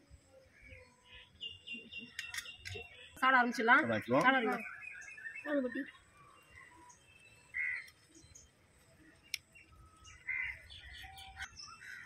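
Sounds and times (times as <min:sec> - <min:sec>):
faint bird chirps: 0:00.2 - 0:12.0
bird calls: 0:00.4 - 0:12.0
sharp click: 0:02.1 - 0:02.8.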